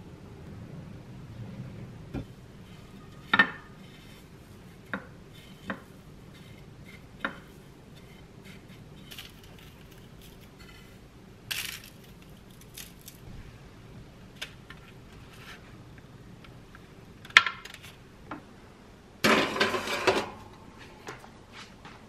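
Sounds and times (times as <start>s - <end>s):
dishes clinking and knocking: 19.2s - 20.4s.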